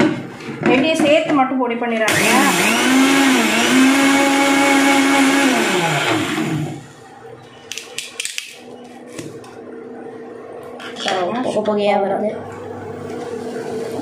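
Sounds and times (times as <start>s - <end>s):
electric mixer grinder motor: 2.1s - 6.9s.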